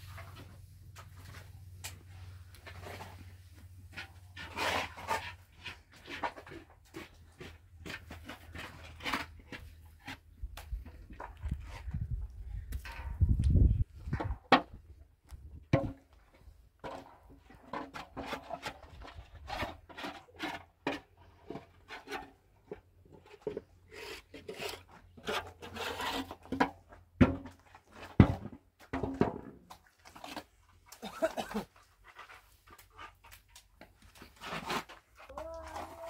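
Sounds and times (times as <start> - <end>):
trowel scraping in metal basin: 3.9 - 7.1, 23.4 - 26.6.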